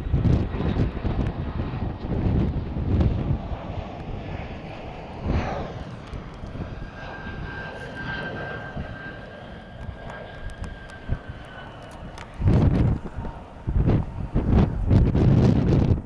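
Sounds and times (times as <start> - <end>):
jet engines rushing: 0.0 - 16.0
wind buffeting microphone: 0.0 - 16.0
thin high whine: 5.3 - 15.9.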